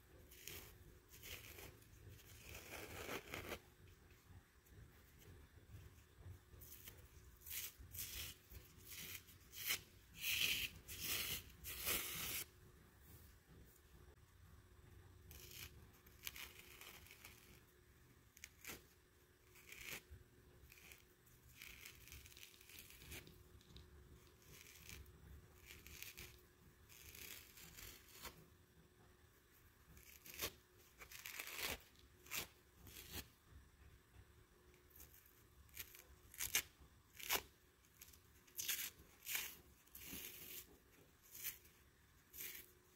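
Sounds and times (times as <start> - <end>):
kitchen sponges being torn: 30.0 - 33.2, 42.3 - 42.7.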